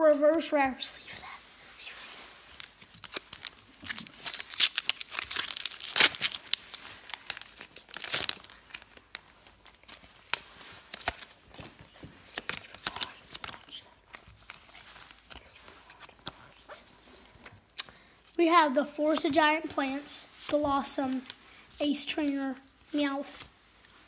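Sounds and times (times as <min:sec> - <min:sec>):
foil wrapper crinkling and tearing: 0:02.4 - 0:16.7
pack handling crinkles and clicks: 0:02.5 - 0:18.4, 0:20.4 - 0:21.4.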